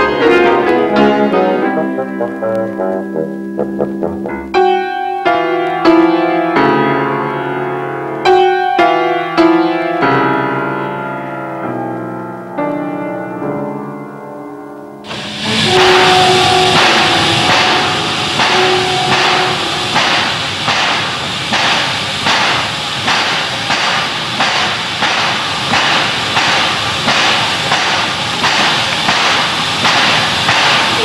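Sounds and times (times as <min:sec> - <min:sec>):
steam locomotive chuffing and hissing: 0:15.1 - 0:31.0.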